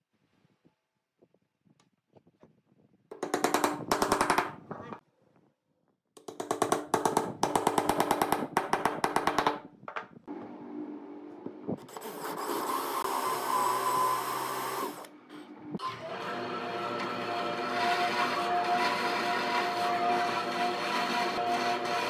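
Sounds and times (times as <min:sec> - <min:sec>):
wooden mallet tapping on wood: 0:03.1 - 0:04.5
power drill boring into wood: 0:12.3 - 0:15.1.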